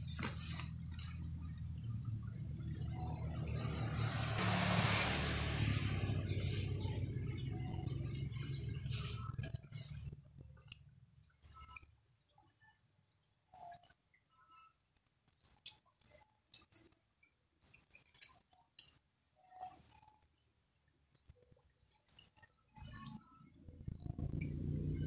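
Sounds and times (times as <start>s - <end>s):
bird chirping: 0.0s - 12.6s, 19.5s - 20.4s, 21.9s - 25.0s.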